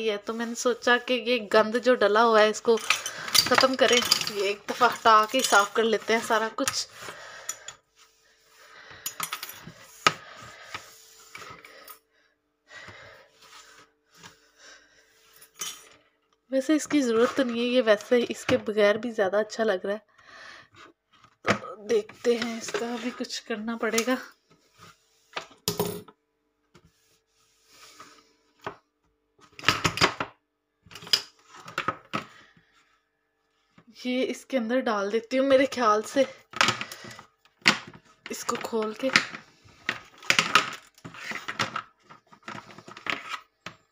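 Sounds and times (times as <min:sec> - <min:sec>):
wooden pieces scraping on countertop: 0:39.8 - 0:43.5.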